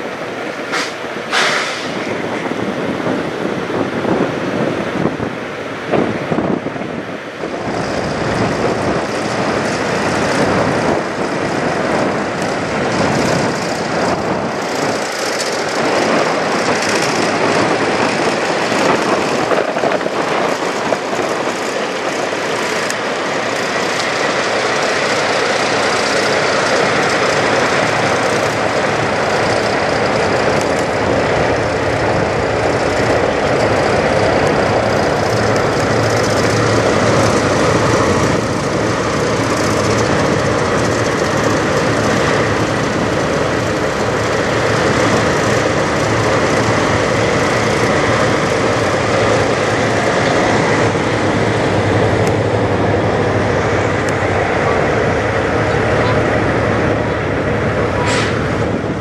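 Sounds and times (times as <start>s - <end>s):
diesel truck engine idling: 21.8s - 59.0s.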